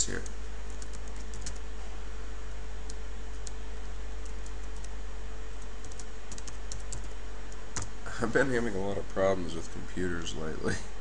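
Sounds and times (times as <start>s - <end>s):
keyboard typing: 0.0s - 1.6s, 2.9s - 3.6s, 4.2s - 7.9s
low hum and hiss: 0.0s - 11.0s.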